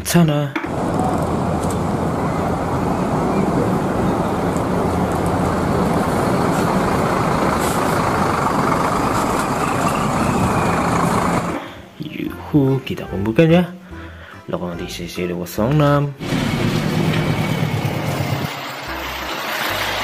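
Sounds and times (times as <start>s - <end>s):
road noise: 0.6s - 12.0s, 16.2s - 20.0s
bus diesel engine passing: 0.7s - 11.9s, 16.2s - 20.0s
air brake hiss: 7.5s - 8.2s.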